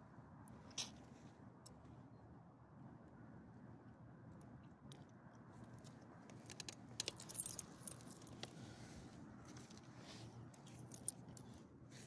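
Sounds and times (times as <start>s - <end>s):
dog tag and leash clip jingling: 7.0s - 8.4s.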